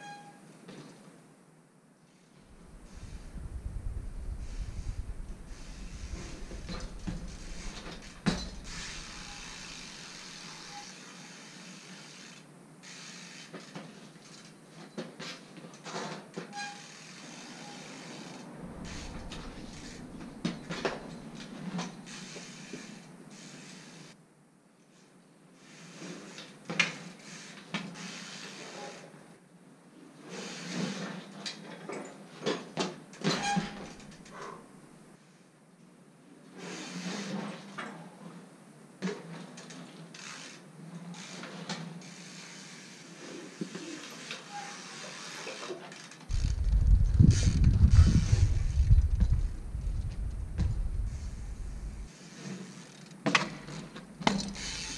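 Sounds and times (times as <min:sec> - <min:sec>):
low rumble: 0:02.5 - 0:09.7, 0:18.5 - 0:21.0, 0:46.3 - 0:52.1.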